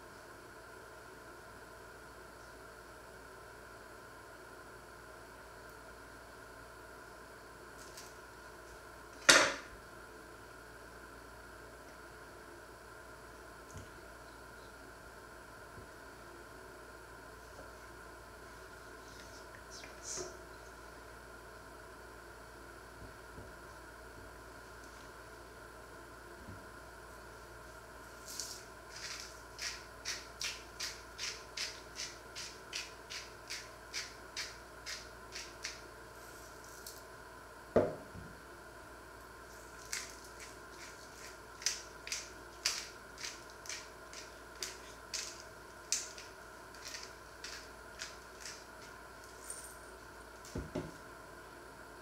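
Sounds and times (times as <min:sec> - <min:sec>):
spice mill grinding: 0:28.3 - 0:35.9, 0:39.6 - 0:49.6.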